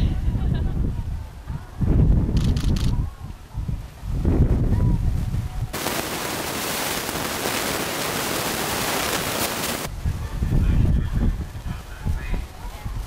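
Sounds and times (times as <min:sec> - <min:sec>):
loud static hiss: 0:05.8 - 0:10.0.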